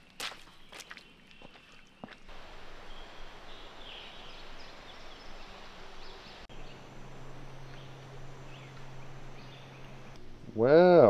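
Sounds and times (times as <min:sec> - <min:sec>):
faint bird chirps: 0:00.6 - 0:10.2
steady outdoor hiss: 0:02.0 - 0:11.0
low steady hum: 0:02.3 - 0:11.0.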